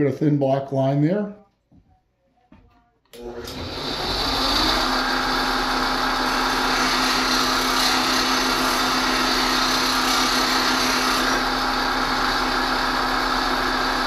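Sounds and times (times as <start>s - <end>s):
bench grinder motor: 3.2s - 14.0s.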